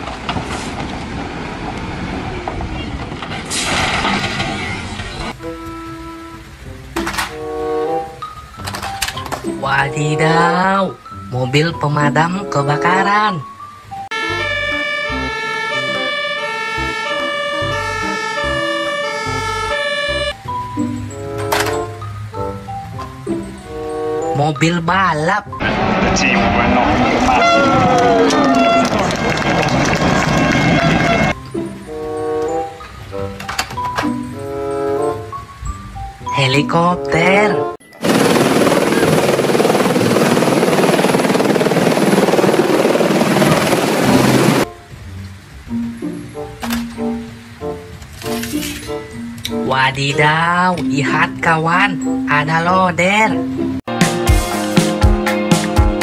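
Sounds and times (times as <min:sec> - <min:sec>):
fire engine siren: 0:14.1 - 0:20.4, 0:25.6 - 0:32.6
helicopter rotor chopping: 0:38.0 - 0:44.7.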